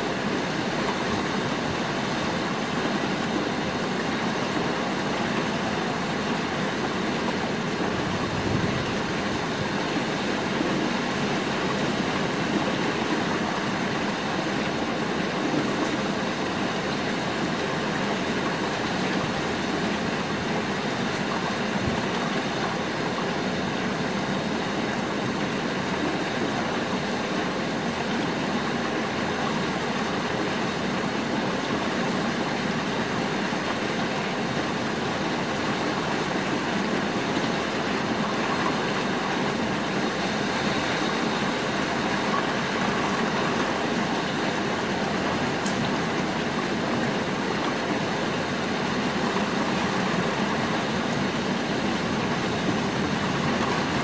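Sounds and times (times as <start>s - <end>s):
rain on rooftops: 0.0s - 54.0s.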